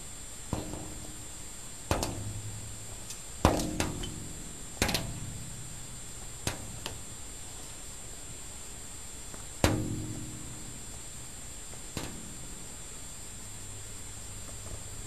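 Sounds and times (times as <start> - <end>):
sharp knocks: 0.5 - 1.3, 1.9 - 5.6, 9.6 - 10.8.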